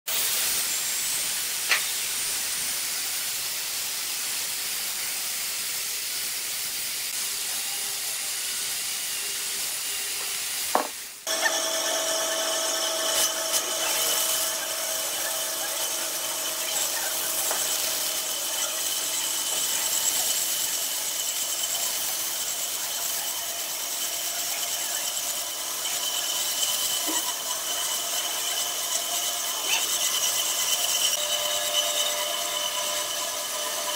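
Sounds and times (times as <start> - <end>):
band saw whining: 9.1 - 33.9
chainsaw cutting a log: 10.7 - 33.9.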